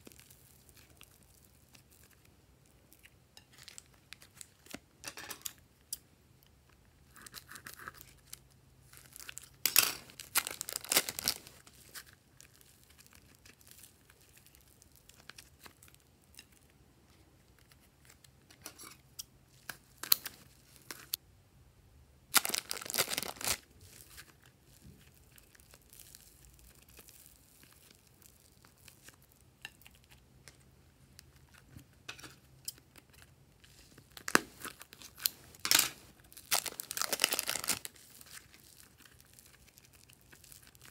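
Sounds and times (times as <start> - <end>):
plastic crinkling and tearing: 0.0 - 2.3, 7.1 - 16.7, 19.6 - 21.2, 22.3 - 30.6, 31.2 - 40.9.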